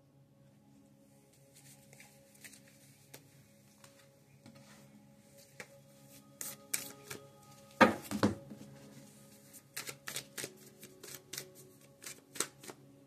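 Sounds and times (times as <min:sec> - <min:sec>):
soft background music: 0:00.0 - 0:13.0
cards being shuffled: 0:01.4 - 0:04.6, 0:05.4 - 0:12.9.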